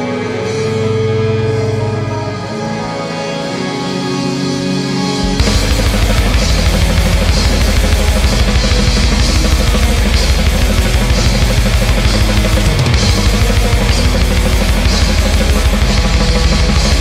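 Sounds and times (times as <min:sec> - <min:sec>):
black metal song: 0:00.0 - 0:17.0
drum kit: 0:05.2 - 0:17.0.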